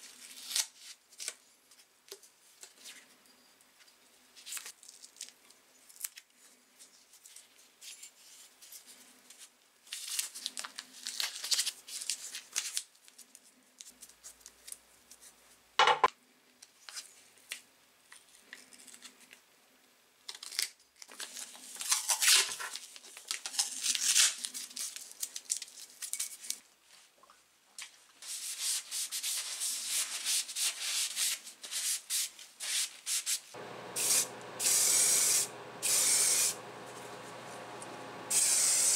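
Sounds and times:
masking tape unrolling and tearing: 0:00.1 - 0:01.4, 0:20.3 - 0:26.1.

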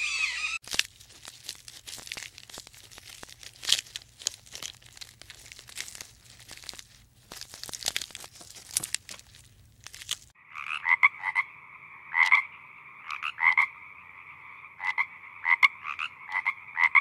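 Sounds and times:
leaves rustling and tearing: 0:00.6 - 0:10.4
frog croaking: 0:10.4 - 0:17.0.

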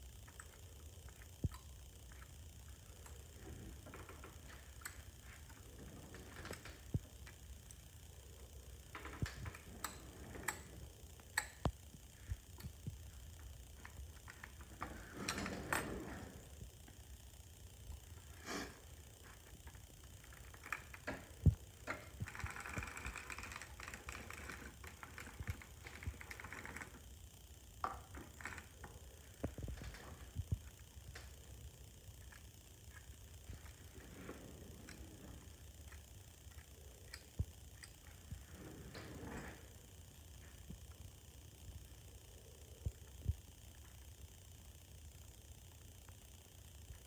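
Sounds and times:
knitting machine clicking: 0:20.2 - 0:27.1.

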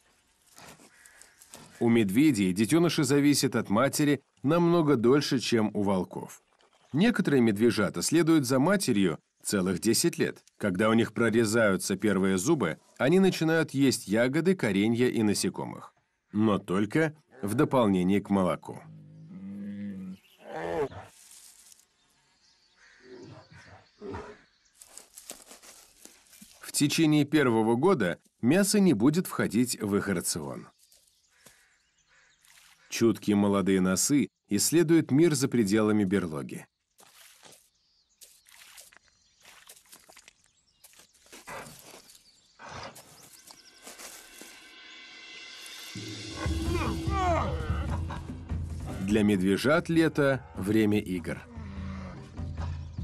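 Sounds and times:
rustling in wet grass: 0:00.0 - 0:01.9, 0:20.9 - 0:22.4, 0:24.7 - 0:26.8, 0:30.7 - 0:32.9, 0:36.9 - 0:44.7
bear cubs growling and bawling: 0:46.4 - 0:49.1, 0:50.4 - 0:53.0.

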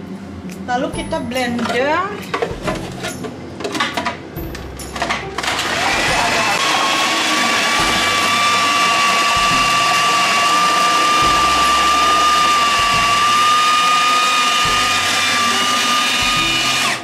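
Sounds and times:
food processor motor whining: 0:05.4 - 0:17.0.

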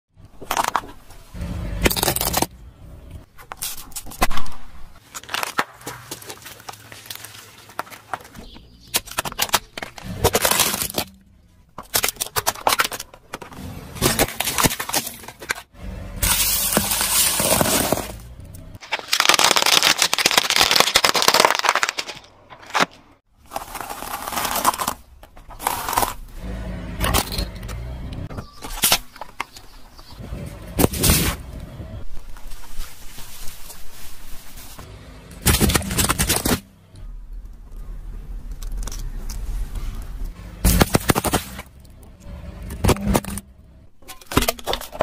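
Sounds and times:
plastic and pasta crushed by tyre: 0:00.2 - 0:02.5, 0:03.3 - 0:26.4, 0:32.2 - 0:36.7, 0:40.6 - 0:42.0, 0:42.6 - 0:45.0.

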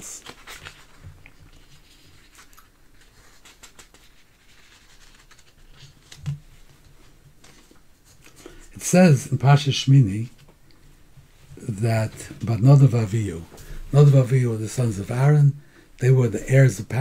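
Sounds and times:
paper sheets rustling: 0:00.0 - 0:08.6.

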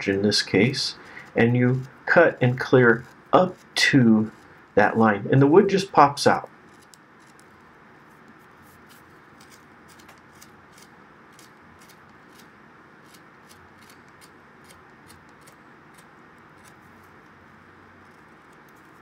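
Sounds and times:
gouge clicking and scraping wood: 0:00.0 - 0:04.5, 0:06.6 - 0:07.5, 0:08.8 - 0:16.8
steady low hiss: 0:00.0 - 0:19.0.

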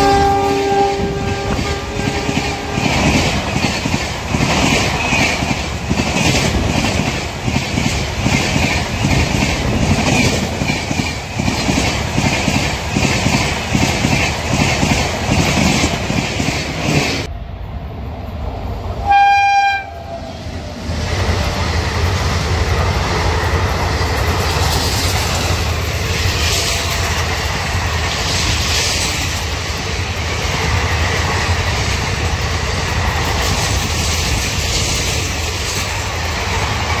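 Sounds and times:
train horn blast: 0:00.0 - 0:03.0, 0:19.0 - 0:20.4
train rumble and rail clatter: 0:00.0 - 0:37.0.

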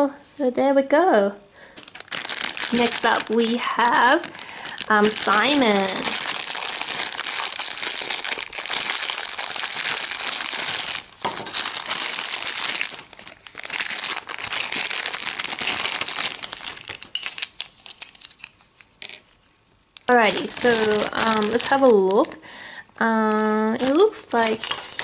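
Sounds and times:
plastic bag crinkling: 0:01.6 - 0:19.2, 0:20.0 - 0:22.4, 0:23.2 - 0:25.0
plastic bag tearing: 0:01.8 - 0:18.3, 0:20.1 - 0:22.4, 0:23.2 - 0:25.0.

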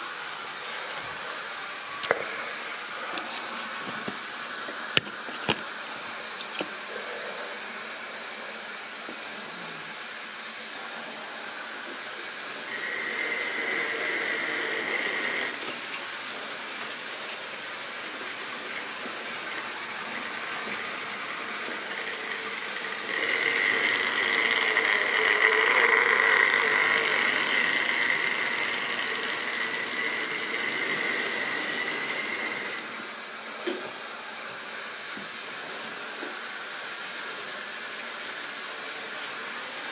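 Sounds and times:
steady hiss: 0:00.0 - 0:39.9
small electric motor whining: 0:12.5 - 0:33.2.

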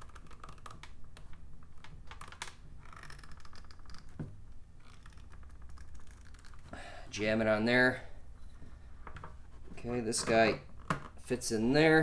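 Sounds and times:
plastic tubing clicks and rustles: 0:00.0 - 0:06.8.

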